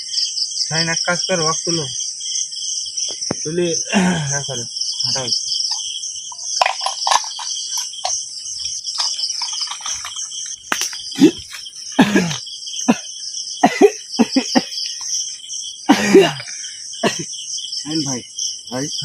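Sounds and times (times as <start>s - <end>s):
crickets chirring: 0.0s - 19.0s
man coughing: 3.9s - 4.4s, 11.2s - 11.4s, 12.0s - 14.8s, 15.9s - 17.3s
man's strained vocal outbursts: 12.0s - 13.0s, 15.9s - 17.2s.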